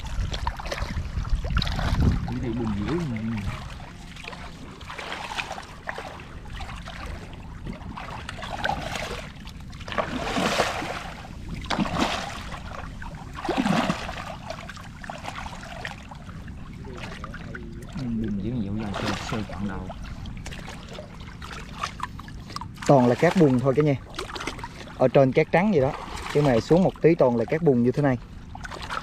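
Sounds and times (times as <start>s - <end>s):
hands splashing in shallow water: 9.8s - 12.7s.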